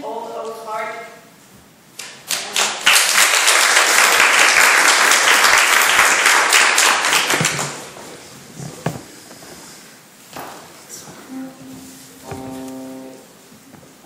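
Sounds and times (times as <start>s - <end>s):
small audience applauding: 2.0s - 8.0s.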